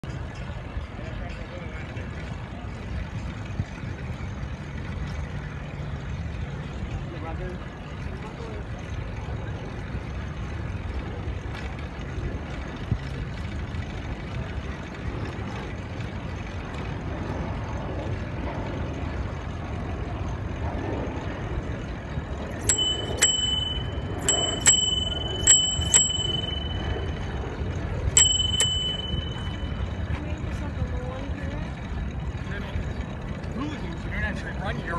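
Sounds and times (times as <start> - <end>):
wind and tyre rumble: 8.9 - 34.9
bicycle bell ringing: 22.5 - 30.7.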